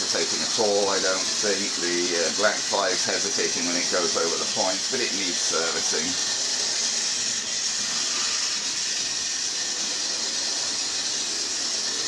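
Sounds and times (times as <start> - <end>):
model train motors whirring: 0.0 - 12.0.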